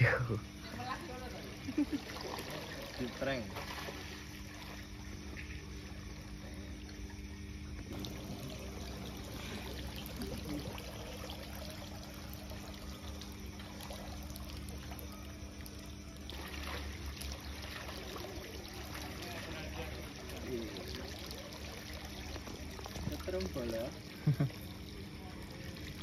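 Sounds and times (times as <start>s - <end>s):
water splashing and trickling: 0.5s - 26.0s.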